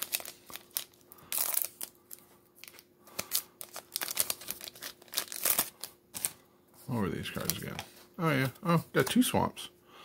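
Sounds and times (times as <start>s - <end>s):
foil wrapper crinkling and tearing: 0.0s - 6.4s, 7.2s - 7.8s.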